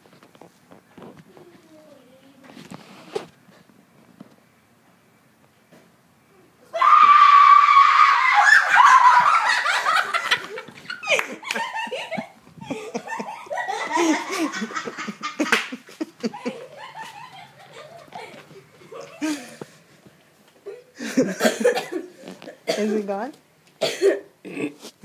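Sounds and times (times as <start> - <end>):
person screaming: 6.7 - 9.2
person laughing: 8.8 - 19.7, 20.6 - 22.0.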